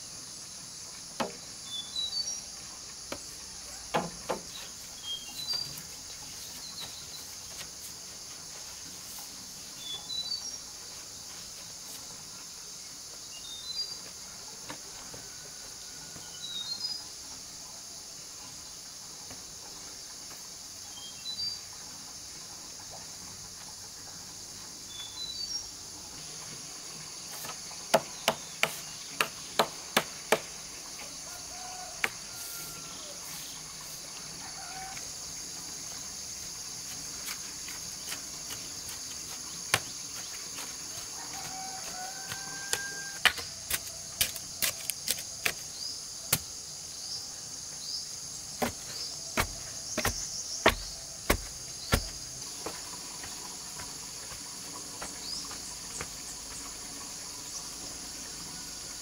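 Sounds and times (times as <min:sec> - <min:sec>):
crickets chirring: 0:00.0 - 0:59.0
bamboo poles knocking: 0:01.1 - 0:01.4, 0:03.1 - 0:04.7, 0:27.4 - 0:30.6, 0:32.0 - 0:32.3, 0:37.0 - 0:45.7, 0:48.6 - 0:54.0
deep thuds into earth: 0:48.6 - 0:52.3.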